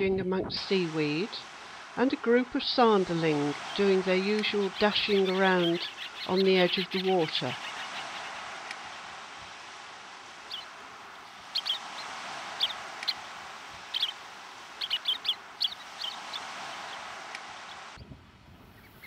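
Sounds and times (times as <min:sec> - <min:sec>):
surf rushing: 0:00.6 - 0:18.0
shorebirds chirping: 0:02.8 - 0:09.3, 0:10.2 - 0:18.0.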